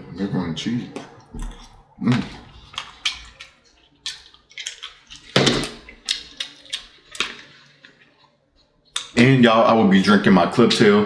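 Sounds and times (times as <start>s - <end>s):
food plopping and spoon scraping: 1.2s - 9.2s.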